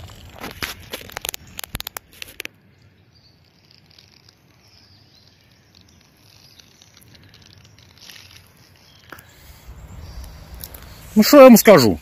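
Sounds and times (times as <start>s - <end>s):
faint rustles: 3.4s - 11.3s.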